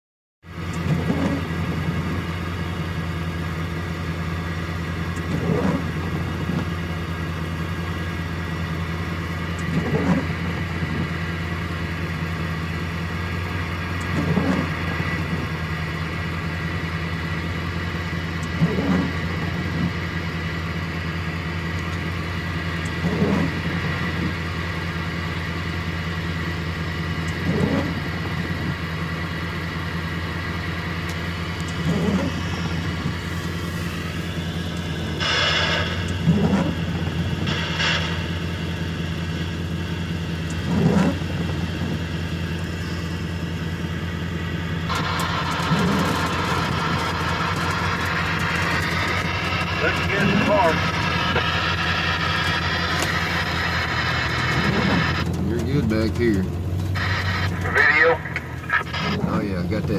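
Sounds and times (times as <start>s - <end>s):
vehicle idling hum: 0.4s - 59.9s
windshield wipers sweeping: 0.8s - 2.3s, 5.1s - 6.8s, 9.6s - 11.2s, 13.6s - 15.5s, 18.4s - 20.0s, 22.8s - 24.5s, 27.3s - 28.8s, 31.2s - 39.7s, 40.4s - 43.2s, 44.8s - 59.9s.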